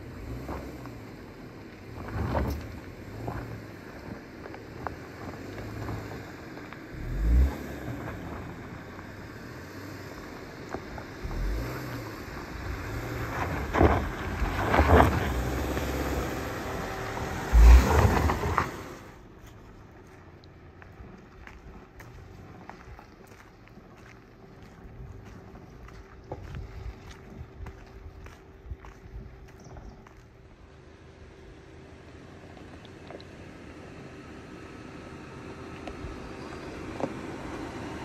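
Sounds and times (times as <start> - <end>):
tyres crunching over gravel: 0.0 - 30.9
car engine driving past: 5.2 - 19.2
wind buffeting microphone: 24.8 - 30.1.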